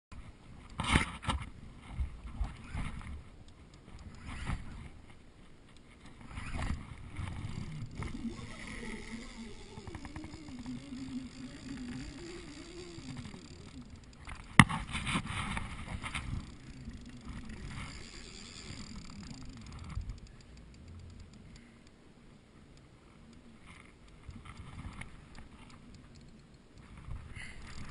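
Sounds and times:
sharp reel click: 3.8 - 4.8, 7.5 - 22.0.

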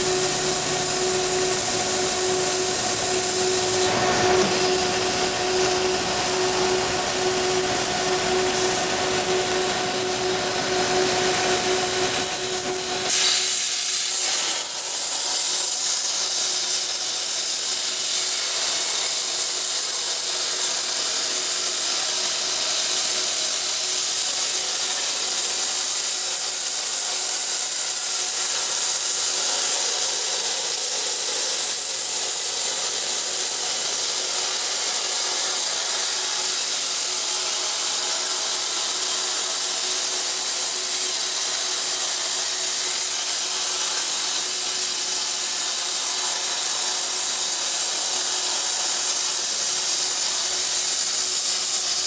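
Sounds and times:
faint steady tone: 0.0 - 13.1
plasma torch hissing: 0.0 - 19.7.

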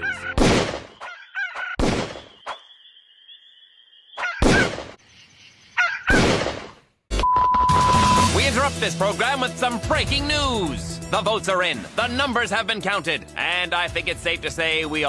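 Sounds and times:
pistol shots: 0.4 - 0.9, 1.8 - 2.3.

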